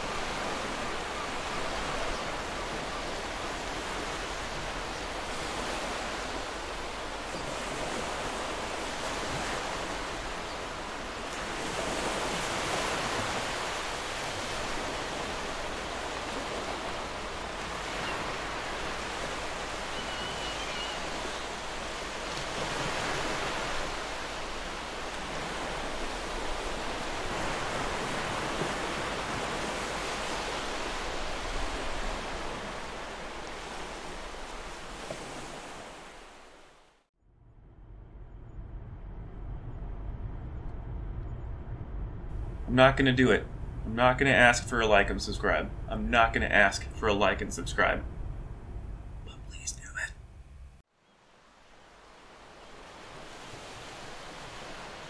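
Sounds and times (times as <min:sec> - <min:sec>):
waves breaking on beach: 0:00.0 - 0:37.1, 0:42.3 - 0:48.2, 0:51.2 - 0:55.0.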